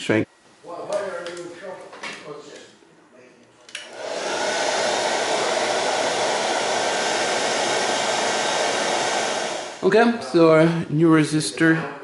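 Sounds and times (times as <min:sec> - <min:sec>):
hot-air gun blowing air: 0:03.9 - 0:09.9.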